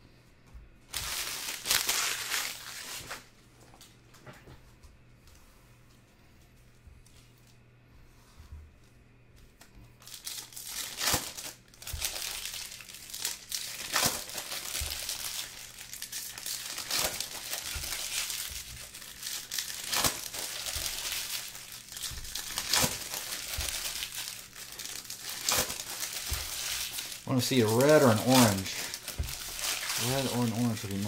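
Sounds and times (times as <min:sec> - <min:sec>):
foil wrappers crinkling: 0:00.9 - 0:03.3, 0:10.0 - 0:31.0.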